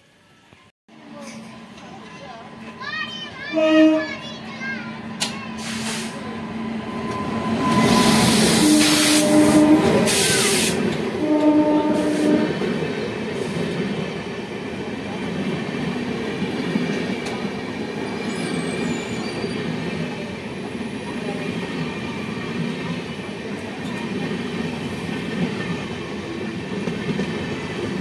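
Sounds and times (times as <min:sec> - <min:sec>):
train coaches rumbling past: 0:00.0 - 0:28.0
train horn blasts: 0:03.4 - 0:04.2, 0:07.1 - 0:12.7.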